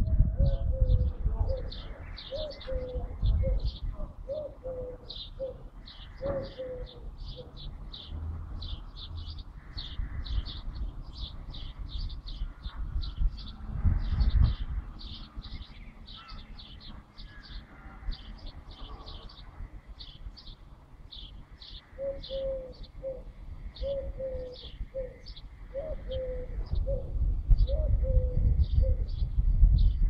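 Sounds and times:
pigeon cooing: 0.0 - 7.7, 22.0 - 29.2
small birds chirping: 0.0 - 30.0
low rumble: 25.7 - 30.0.

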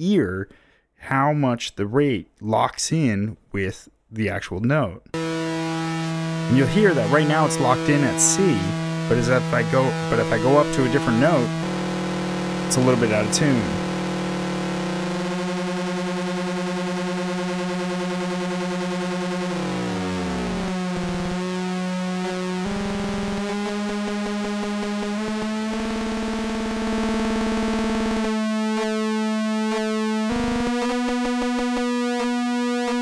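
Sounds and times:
gliding synthesizer modulation tones: 5.2 - 28.4
synthesizer pulse-wave tone: 5.2 - 33.0.

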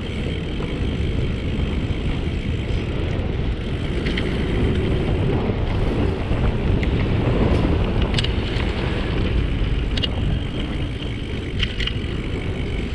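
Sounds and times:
wind rushing over microphone: 0.0 - 12.9
light clicks or rattles: 3.8 - 4.9, 6.8 - 12.9.

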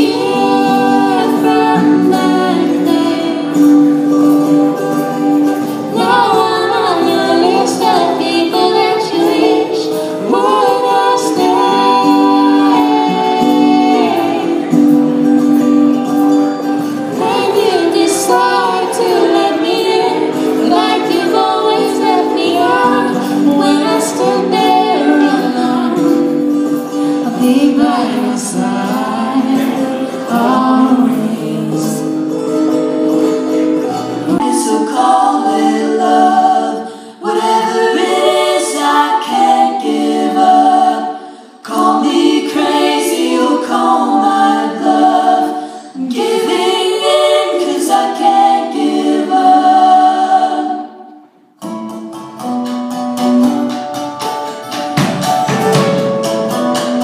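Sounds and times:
women singing in harmony: 0.0 - 32.4, 34.2 - 51.5
person singing: 0.0 - 51.2
acoustic guitar: 0.0 - 57.0.

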